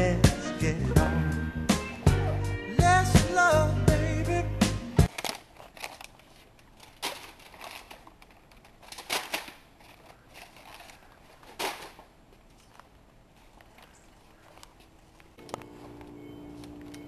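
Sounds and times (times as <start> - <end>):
faint store background: 5.1 - 17.0
packaging rustling: 5.1 - 17.0.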